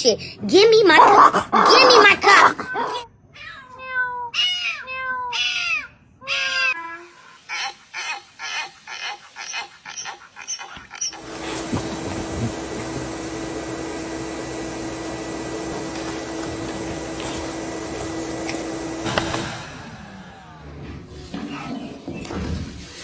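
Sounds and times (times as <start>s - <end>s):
whirring motor: 11.1s - 21.3s.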